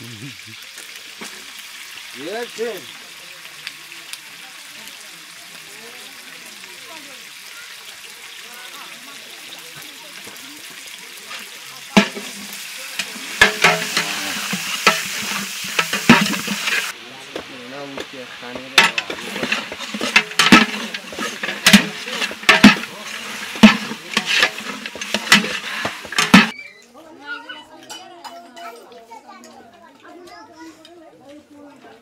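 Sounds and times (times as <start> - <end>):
meat sizzling in a pot: 0.0 - 26.6
ladle knocking and scraping pot: 12.0 - 26.5.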